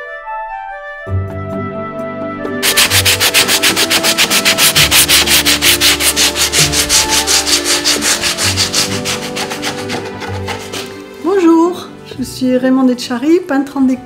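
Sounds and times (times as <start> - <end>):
hand sanding strokes: 2.6 - 11.0.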